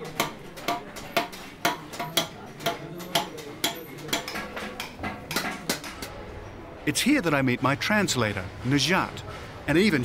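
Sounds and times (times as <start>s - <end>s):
hammer beating on copper pot: 0.0s - 6.1s.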